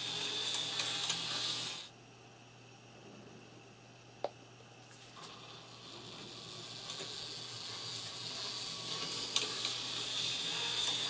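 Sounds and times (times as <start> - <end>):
model train motor whine: 0.0 - 1.9, 5.2 - 11.0.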